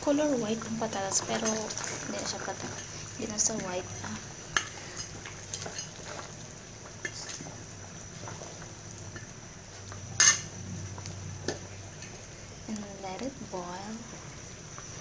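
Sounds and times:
low steady hum: 0.0s - 15.0s
metal clank against pot: 10.2s - 10.5s.

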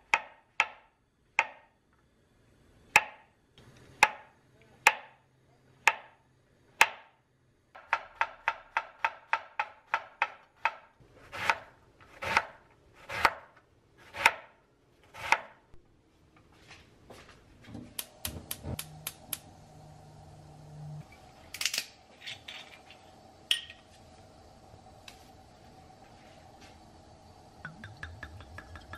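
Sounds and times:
knife chopping on wooden board: 7.8s - 14.5s
low steady hum: 15.7s - 28.9s.

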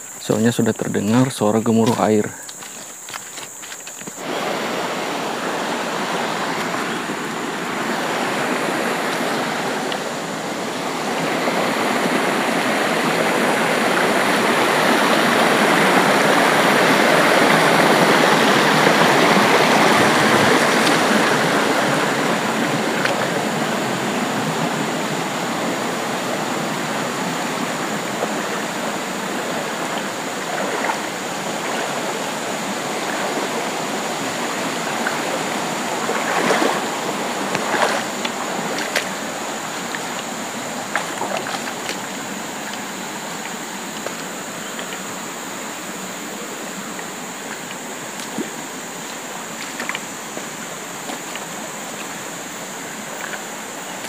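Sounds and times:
water rushing in stream: 0.0s - 54.0s.

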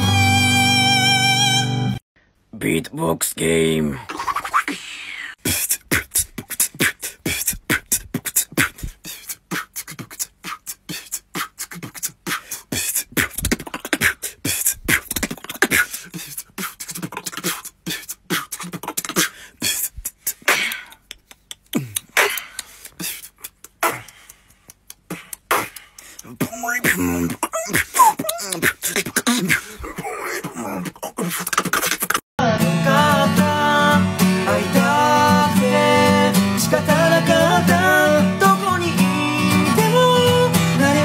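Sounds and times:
person beatboxing: 4.1s - 32.2s.

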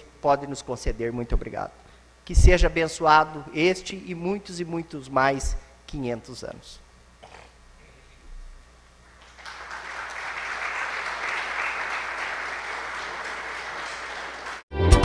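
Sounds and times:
audience applauding: 9.1s - 14.7s.

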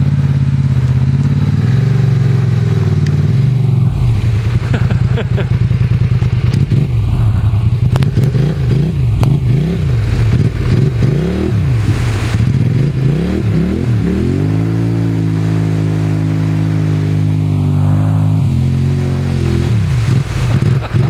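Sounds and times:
churning water: 0.0s - 21.0s
quad bike engine revving: 0.0s - 21.0s.

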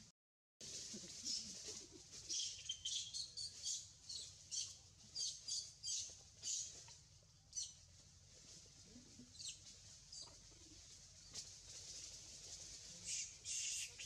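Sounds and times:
small birds chirping: 2.2s - 6.9s, 7.5s - 7.8s, 13.1s - 14.0s.

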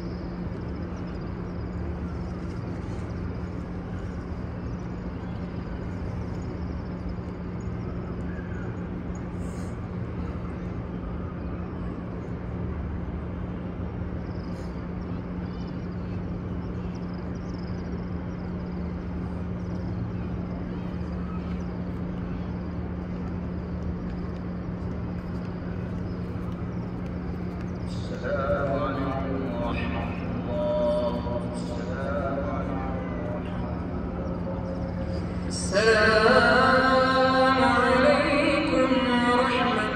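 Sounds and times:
constant low hum: 0.0s - 39.9s
crowd noise: 14.1s - 39.9s.

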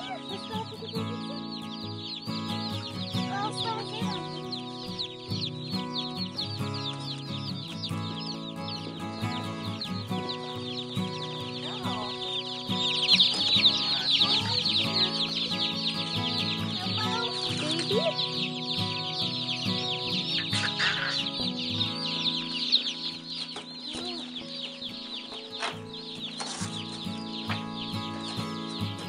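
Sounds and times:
background music: 0.0s - 29.0s
chicks peeping: 0.0s - 29.0s.

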